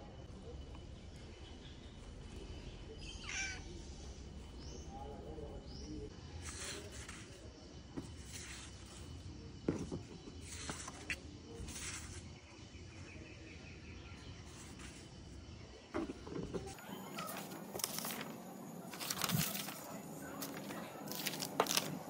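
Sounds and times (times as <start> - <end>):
paper sheets rustling: 10.4 - 12.2, 16.7 - 22.0.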